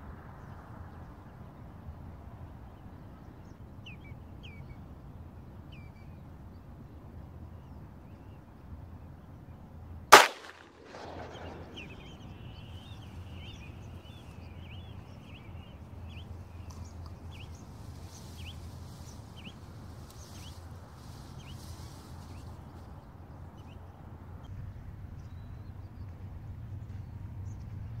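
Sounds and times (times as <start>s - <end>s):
shotgun shot with echo: 10.1s - 12.2s
high bird calls: 10.2s - 22.5s.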